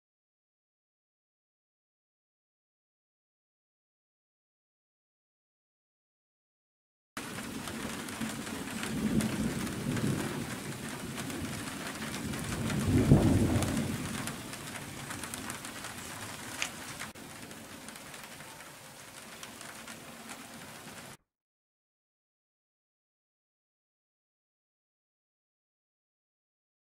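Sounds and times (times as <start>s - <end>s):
rolling thunder: 7.2s - 17.9s
steady rain hissing: 7.2s - 21.2s.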